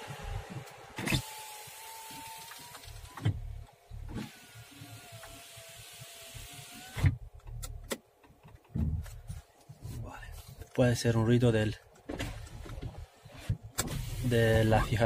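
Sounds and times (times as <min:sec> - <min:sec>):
power window motor whining: 0:13.3 - 0:14.8.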